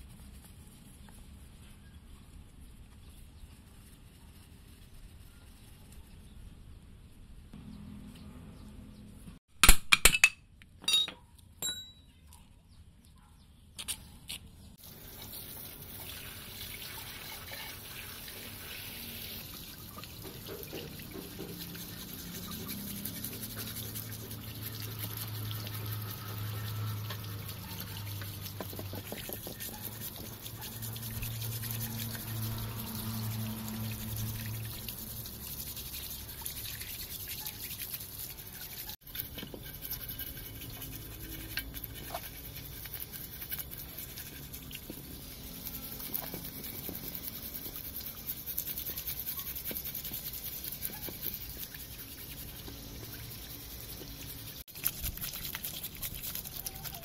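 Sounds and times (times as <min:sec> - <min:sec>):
brush scrubbing metal: 0:00.0 - 0:06.2, 0:14.8 - 0:57.0
hose water splashing on metal: 0:14.8 - 0:57.0.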